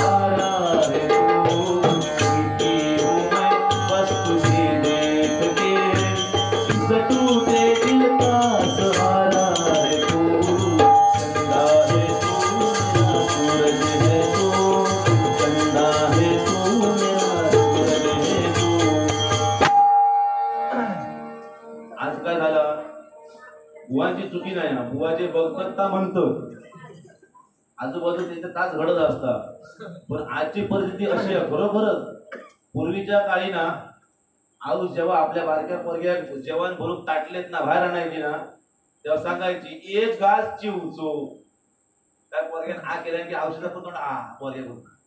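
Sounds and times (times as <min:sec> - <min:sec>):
tabla beat: 0:00.0 - 0:21.3
jingling percussion: 0:00.0 - 0:22.2, 0:26.6 - 0:28.6
melody line: 0:17.3 - 0:23.7.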